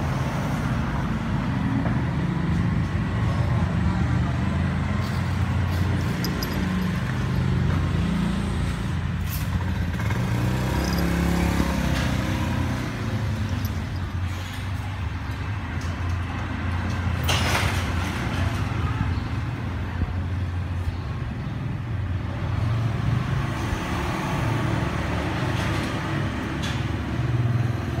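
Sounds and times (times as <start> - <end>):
vehicle engine rumbling: 1.3 - 21.3.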